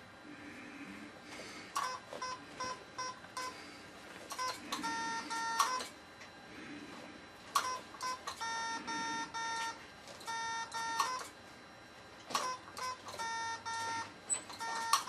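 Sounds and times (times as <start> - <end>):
morse code beeps: 1.8 - 3.6, 4.3 - 6.0, 7.5 - 11.4, 12.3 - 15.0.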